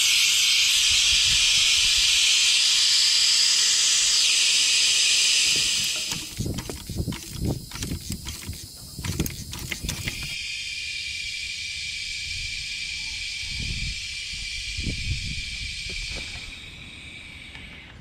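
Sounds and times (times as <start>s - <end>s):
air hissing from tire valve: 0.0s - 10.5s.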